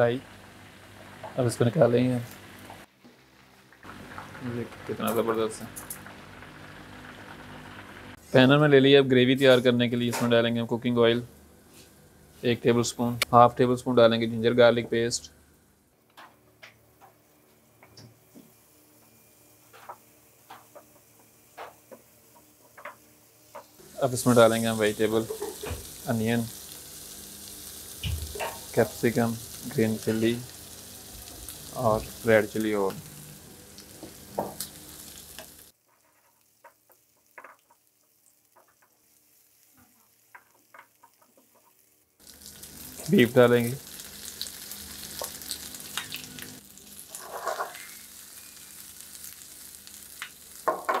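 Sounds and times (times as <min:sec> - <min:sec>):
vegetables sizzling in oil: 0:00.0 - 0:13.3, 0:16.6 - 0:51.0
wooden spatula scraping a pan: 0:47.1 - 0:48.0.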